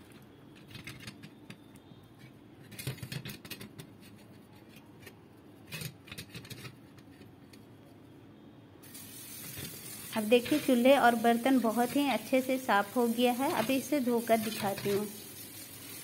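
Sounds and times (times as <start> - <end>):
brush scrubbing metal: 9.4 - 16.0.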